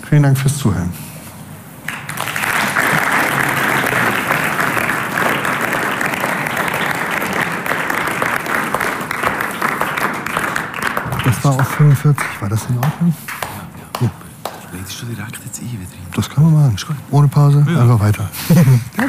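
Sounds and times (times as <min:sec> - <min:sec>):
audience applauding: 0:01.8 - 0:14.8.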